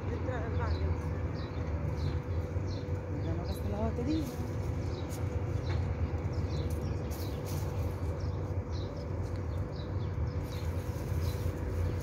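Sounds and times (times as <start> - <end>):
small birds chirping: 0.0 - 12.0
steady low rumble: 0.0 - 12.0.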